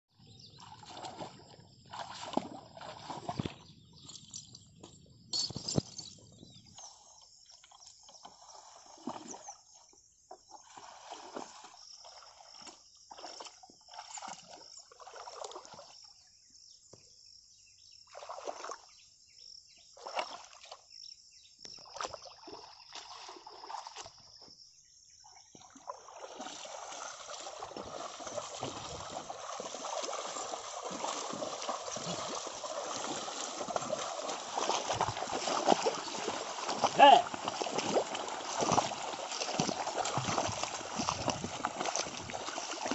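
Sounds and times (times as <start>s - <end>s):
board dragged through muddy water: 0.1s - 4.2s, 5.8s - 16.0s, 25.5s - 42.9s
hooves splashing in shallow water: 0.1s - 42.9s.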